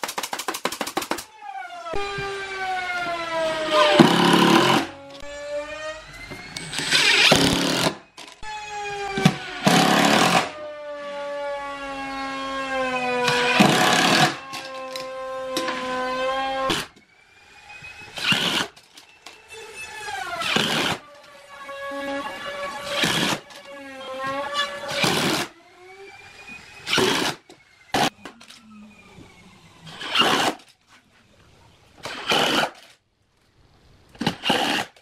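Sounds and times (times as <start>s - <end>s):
impact driver motor whine: 1.9s - 10.6s.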